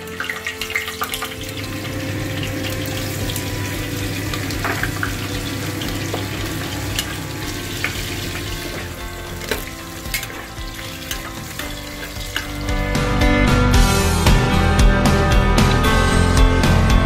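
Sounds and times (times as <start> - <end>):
spices sizzling in hot oil: 0.0 - 13.2
spoon stirring and clicking on pot: 7.8 - 12.8.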